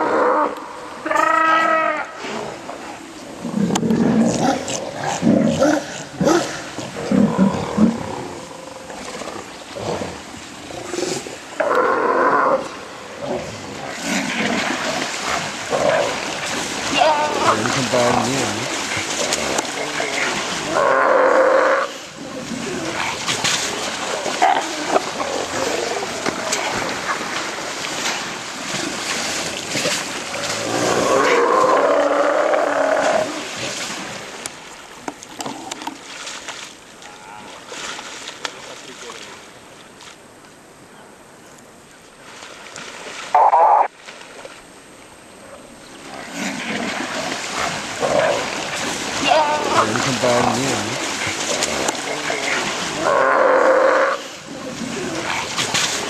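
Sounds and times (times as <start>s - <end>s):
sea lions roaring and barking: 0.0s - 33.8s, 46.0s - 56.0s
water splashing: 0.0s - 40.5s, 42.0s - 56.0s.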